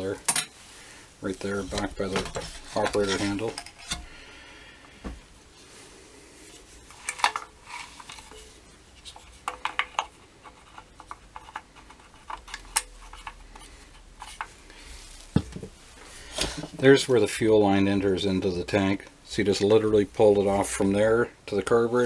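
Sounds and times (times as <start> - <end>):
chainsaw parts clinking: 1.6 - 4.2.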